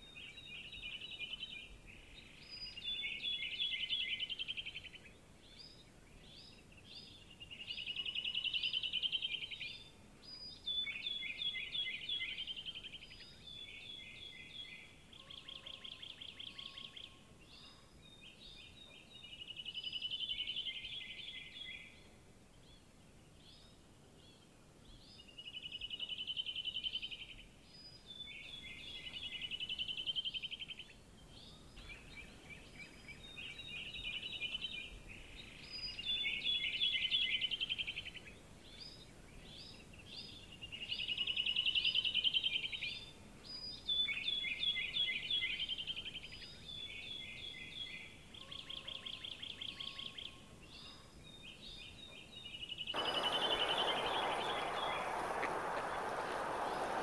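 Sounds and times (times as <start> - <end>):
steady rushing noise: 53.0 - 57.0.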